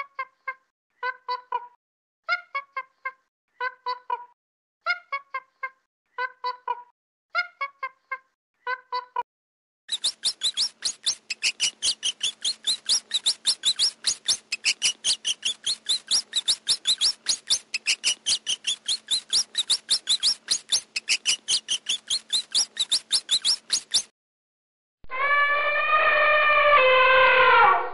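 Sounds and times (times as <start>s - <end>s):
hamster squeaking: 9.9s - 24.1s.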